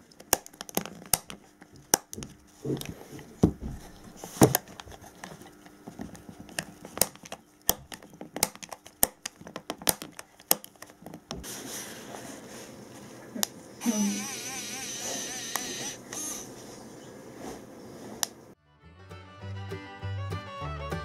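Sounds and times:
plastic parts clicking and tapping: 0.0s - 3.6s, 4.4s - 11.4s.

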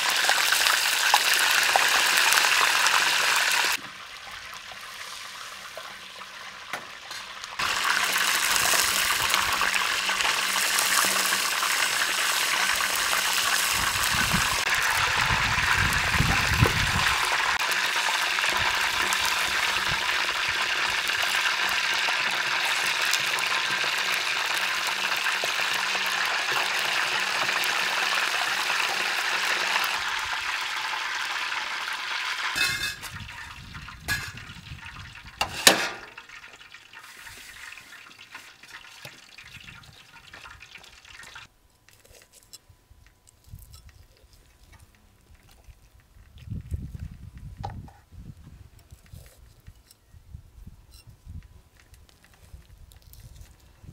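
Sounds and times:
oil sizzling: 0.0s - 41.5s.

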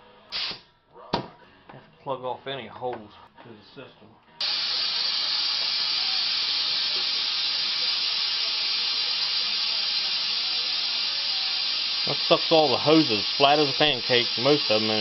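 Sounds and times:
compressed air hissing: 0.3s - 0.6s, 4.4s - 15.0s.

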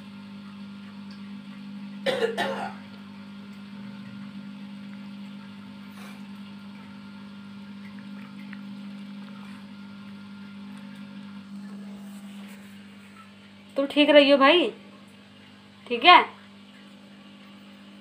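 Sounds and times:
steady low hum: 0.0s - 18.0s
person coughing: 2.0s - 2.8s.

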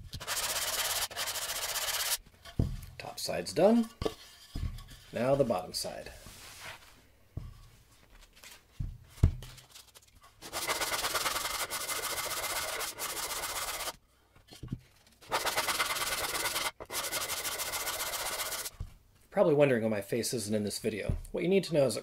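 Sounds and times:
sanding block rubbing wood: 0.1s - 2.2s, 10.4s - 14.0s, 15.3s - 18.7s.

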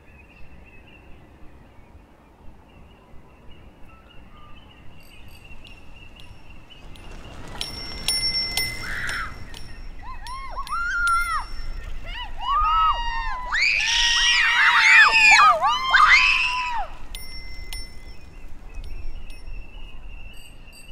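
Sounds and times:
bicycle on dirt track: 4.6s - 20.9s
bicycle bell ringing: 5.0s - 12.7s, 16.2s - 20.9s.

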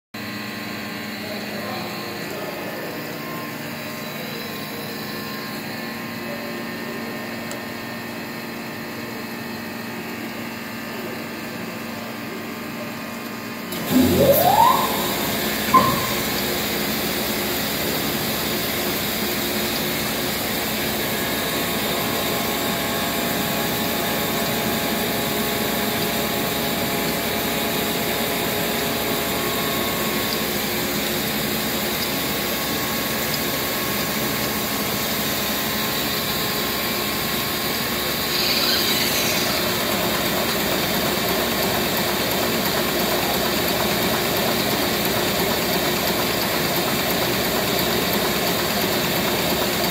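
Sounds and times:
machine motor humming: 13.7s - 17.7s, 38.1s - 40.8s.

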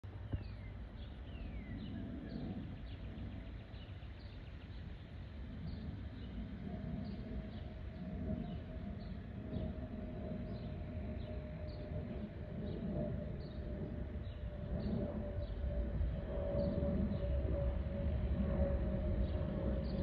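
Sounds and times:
distant jet rumble: 0.0s - 20.0s
small birds chirping: 0.2s - 15.8s.

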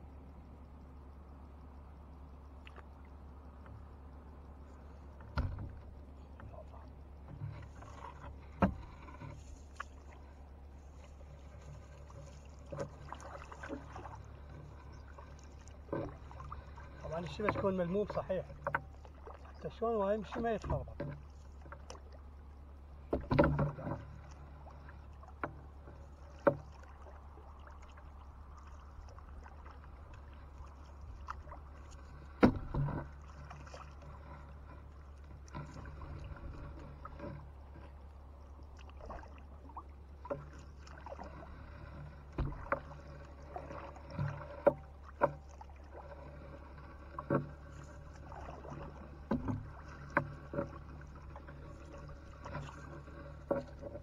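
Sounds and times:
low hum: 0.0s - 54.0s
sharp knocks on wooden boat: 5.3s - 5.9s, 7.3s - 9.4s, 23.1s - 24.0s, 32.3s - 33.2s, 42.3s - 42.9s, 48.6s - 51.5s
small splashes in water: 9.6s - 14.3s, 33.1s - 34.1s, 38.5s - 41.5s.

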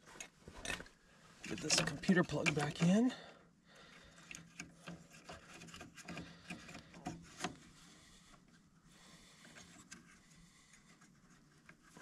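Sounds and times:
faint plug clicks and rubbing: 1.4s - 3.0s, 4.2s - 8.6s, 9.4s - 12.0s.

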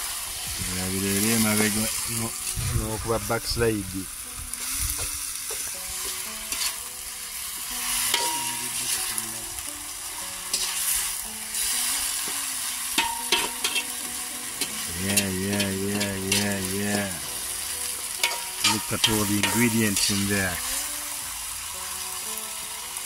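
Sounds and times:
vegetables sizzling in a wok: 0.0s - 23.0s
metal spoon scraping a pan: 6.0s - 6.8s, 7.7s - 9.2s, 10.4s - 16.7s, 18.2s - 20.7s.

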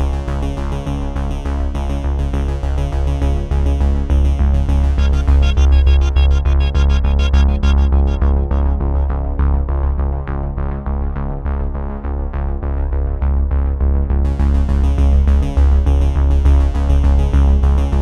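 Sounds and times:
electronic music with heavy bass: 3.7s - 10.2s, 14.3s - 18.0s
bright high percussion: 5.0s - 9.1s.

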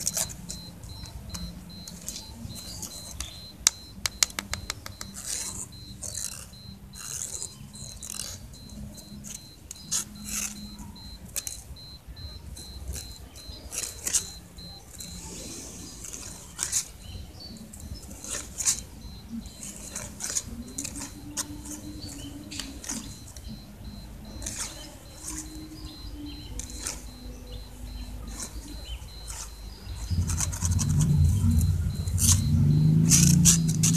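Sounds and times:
stick tapping on concrete: 2.9s - 5.6s.

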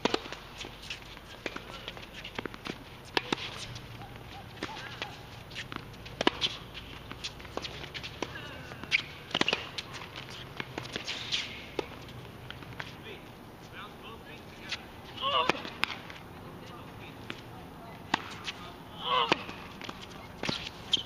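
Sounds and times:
racket hitting tennis ball: 0.0s - 12.9s, 14.7s - 16.2s, 18.1s - 21.0s
tennis ball bouncing: 0.0s - 13.0s, 14.6s - 16.2s, 17.2s - 21.0s
running footsteps on court: 0.1s - 11.1s.

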